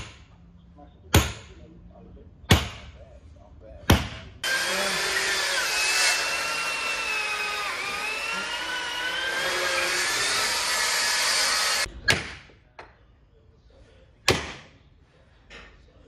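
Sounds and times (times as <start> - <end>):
electric drill boring into wood: 4.4 - 11.9.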